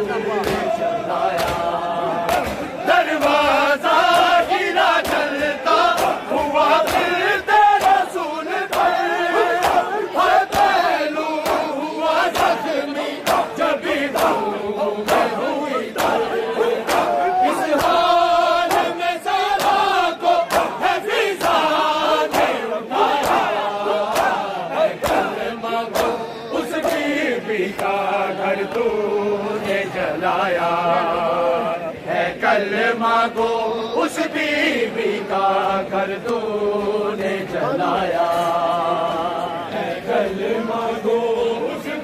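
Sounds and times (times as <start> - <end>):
men chanting in chorus: 0.0 - 42.0.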